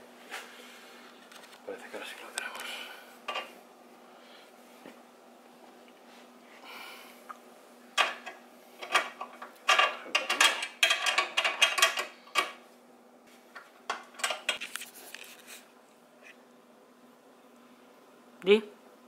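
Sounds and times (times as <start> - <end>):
metal clanks and rattles: 8.0 - 12.5.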